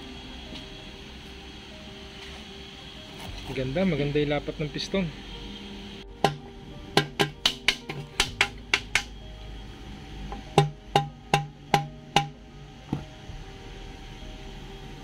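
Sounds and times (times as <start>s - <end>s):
background music: 0.0s - 15.0s
wood block taps: 10.6s - 13.0s.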